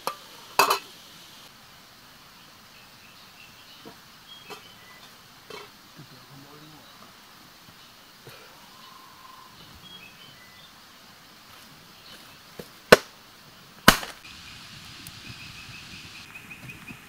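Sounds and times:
faint high chirping: 2.3 - 12.6.

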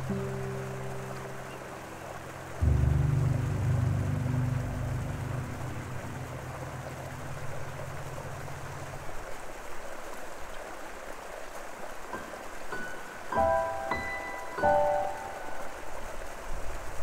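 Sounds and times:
low hum: 0.0 - 10.0
river water rushing: 0.0 - 17.0.

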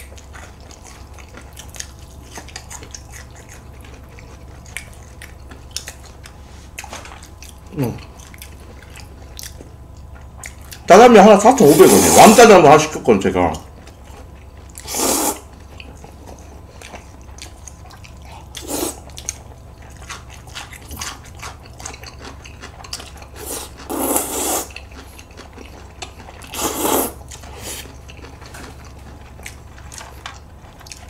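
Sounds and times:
wet eating sounds: 0.0 - 12.8, 13.5 - 31.0
noodles being slurped: 11.5 - 12.6, 14.8 - 15.5, 18.6 - 19.1, 23.3 - 25.2, 26.4 - 28.0.

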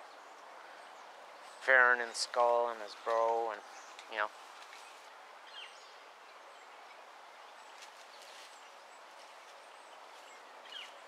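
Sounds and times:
soft bird chirps: 2.9 - 11.0.

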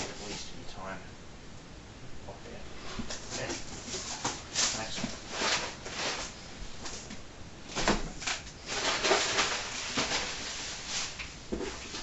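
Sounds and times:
cardboard and paper rustling: 2.8 - 12.0.

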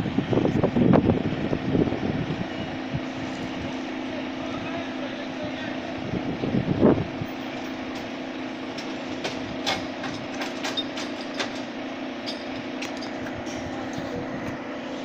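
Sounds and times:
fire engine running: 0.0 - 15.0.

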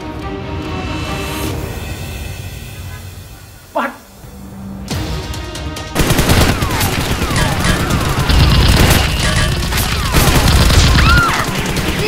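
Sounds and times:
toy blasters firing: 6.0 - 12.0.

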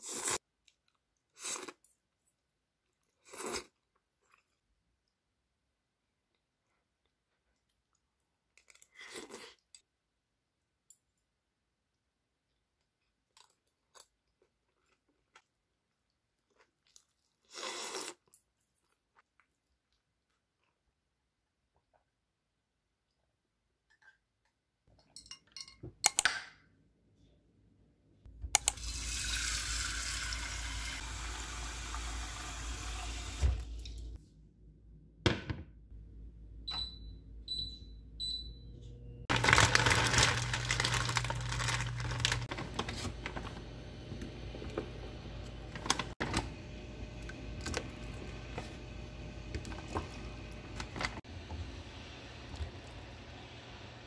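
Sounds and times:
cooktop low hum: 20.4 - 54.0
water running from tap: 28.6 - 34.2
cooktop control beeps: 36.7 - 39.3.

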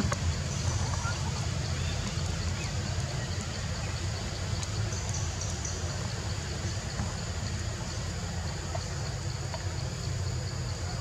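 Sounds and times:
faint high ticks: 4.4 - 5.8.

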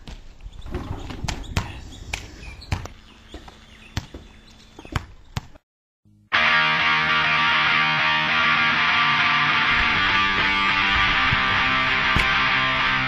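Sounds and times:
loud guitar music: 6.2 - 13.0.

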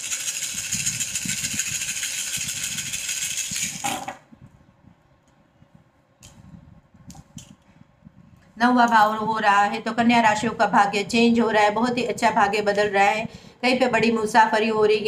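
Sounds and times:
shells rattling in hands: 0.0 - 4.0.

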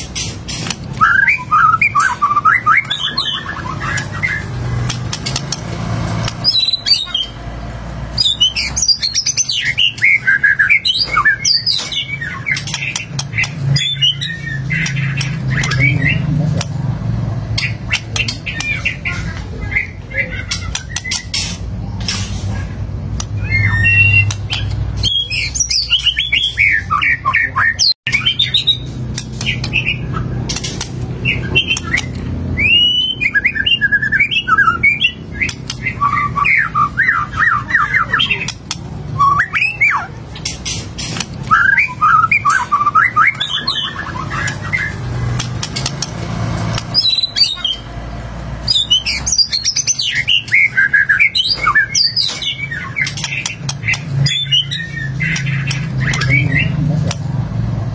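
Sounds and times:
songbird singing whistled phrases: 0.9 - 4.4, 23.4 - 30.3, 31.2 - 40.2, 41.4 - 45.0.

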